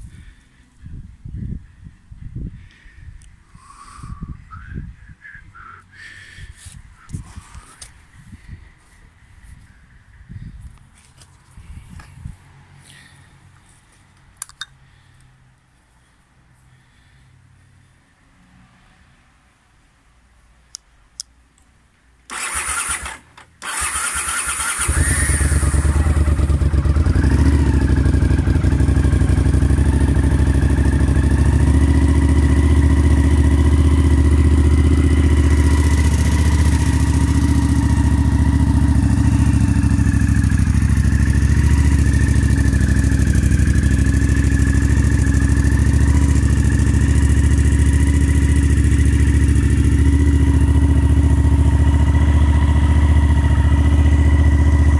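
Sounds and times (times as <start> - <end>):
electric starter cranking: 22.3 - 26.0
motorcycle engine idling: 22.3 - 54.9.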